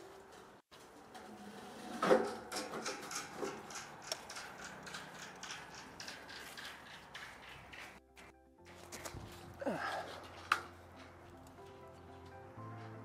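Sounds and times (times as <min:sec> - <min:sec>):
rope hoist clicking and creaking: 0:00.9 - 0:08.3.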